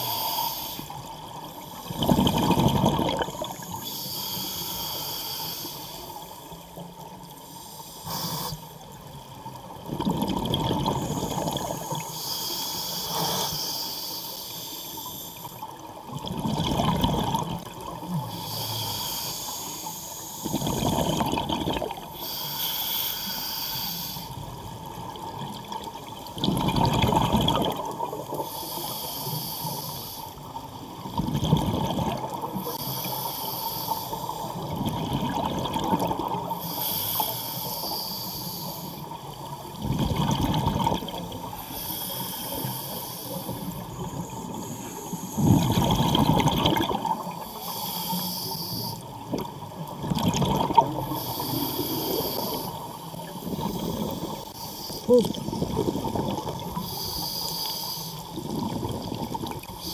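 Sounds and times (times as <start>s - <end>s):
regulator inhale hiss: 0.0s - 2.0s, 3.6s - 6.6s, 7.3s - 8.9s, 11.0s - 15.8s, 18.2s - 20.8s, 22.1s - 24.5s, 28.3s - 30.6s, 32.4s - 34.7s, 36.5s - 39.5s, 41.4s - 45.7s, 47.1s - 49.2s, 51.0s - 55.1s, 56.6s - 58.4s
exhaled bubbles rushing: 1.9s - 3.7s, 9.7s - 12.0s, 16.0s - 18.0s, 20.5s - 22.1s, 25.2s - 28.4s, 31.0s - 32.5s, 34.6s - 36.5s, 39.7s - 41.5s, 45.4s - 47.4s, 49.2s - 51.1s, 55.1s - 56.7s, 58.4s - 59.8s.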